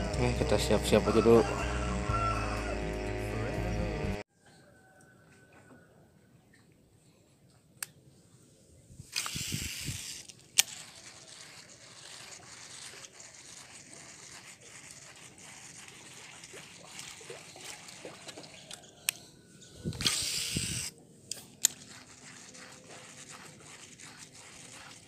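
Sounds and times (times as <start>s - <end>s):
water splashing and trickling: 10.6s - 19.0s, 21.4s - 25.0s.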